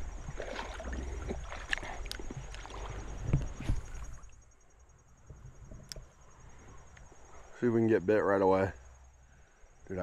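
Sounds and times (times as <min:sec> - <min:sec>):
wind on microphone: 0:02.4 - 0:04.3.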